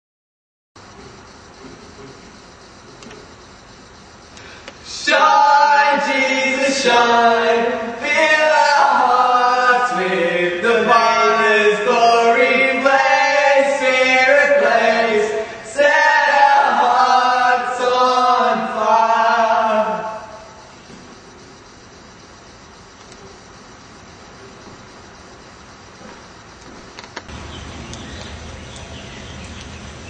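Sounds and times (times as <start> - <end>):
voices singing chant-like melody: 4.7 - 21.0.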